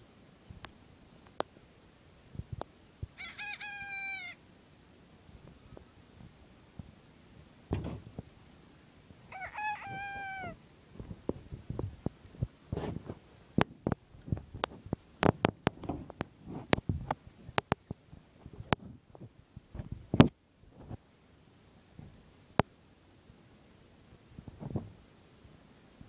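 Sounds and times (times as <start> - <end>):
rooster crowing: 3.2 - 4.4, 9.3 - 10.6
sharp clicks and knocks: 7.7 - 8.2, 13.6 - 18.0.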